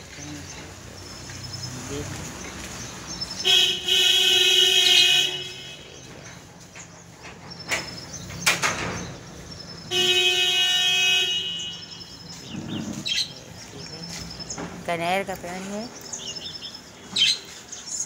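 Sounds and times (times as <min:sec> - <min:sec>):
vehicle horn honking: 0:03.5 - 0:06.0, 0:09.9 - 0:11.9.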